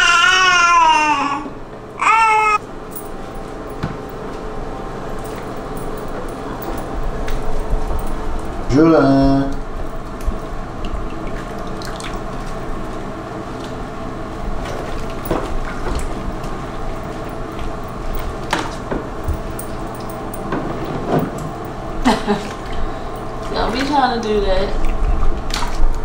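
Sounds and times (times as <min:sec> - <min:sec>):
bath water sloshing and dripping: 0:09.6 - 0:26.0
small water splashes: 0:11.1 - 0:12.6.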